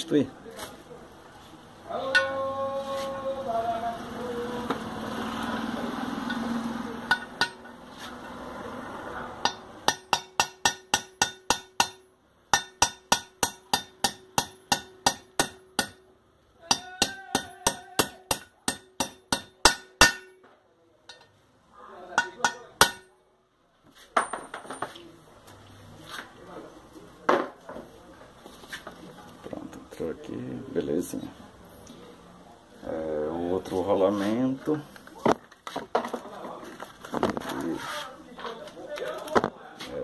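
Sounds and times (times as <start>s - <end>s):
metallic ringing tone: 2.1s - 2.6s.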